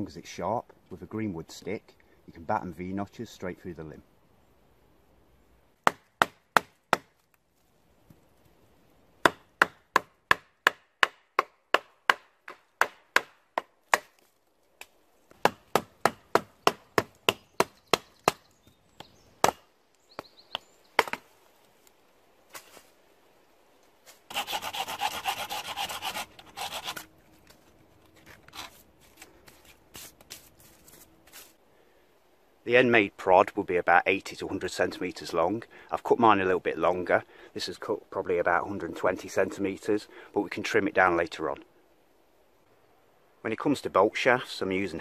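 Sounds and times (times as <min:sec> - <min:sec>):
rasping crackling wood: 0:24.3 - 0:27.1.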